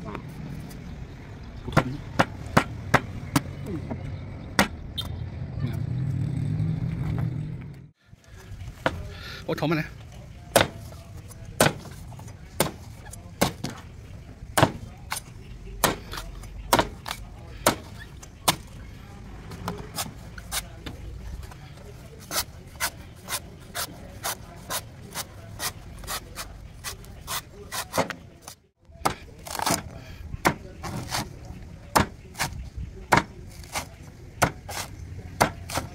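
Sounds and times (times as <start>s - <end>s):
knife chopping coconut husk: 10.5s - 11.0s, 11.6s - 13.8s, 14.6s - 18.7s, 22.2s - 28.2s, 29.0s - 35.9s.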